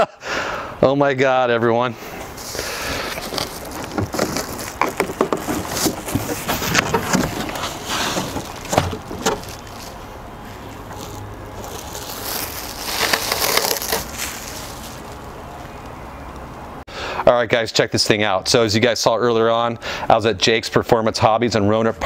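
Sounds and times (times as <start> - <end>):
plastic rustling: 2.2 - 15.8
plastic packaging crinkling: 2.3 - 15.8.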